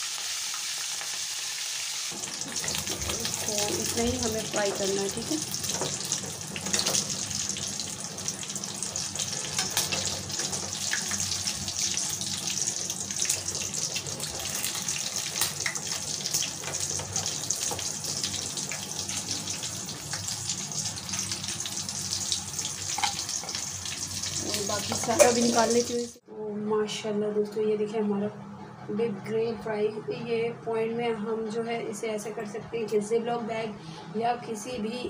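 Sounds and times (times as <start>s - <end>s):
meat sizzling in hot oil: 0.0s - 26.2s
oil crackling and popping: 2.1s - 25.4s.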